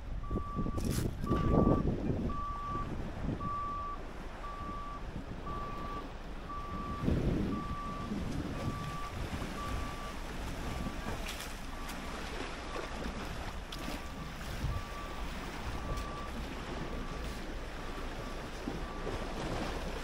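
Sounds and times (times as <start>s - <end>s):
wind buffeting microphone: 0.0s - 20.0s
reversing beeper: 0.2s - 10.2s, 14.0s - 19.7s
lake waves lapping on rocks: 4.0s - 20.0s.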